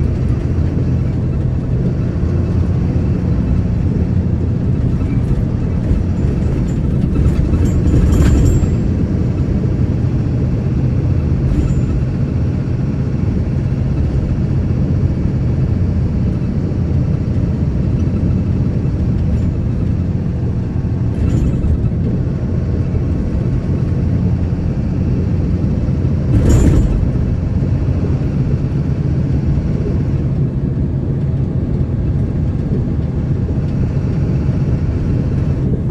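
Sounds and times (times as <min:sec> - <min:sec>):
road noise: 0:00.0 - 0:35.9
vehicle engine hum: 0:00.0 - 0:35.9
brief knocks or rattles: 0:26.3 - 0:27.4.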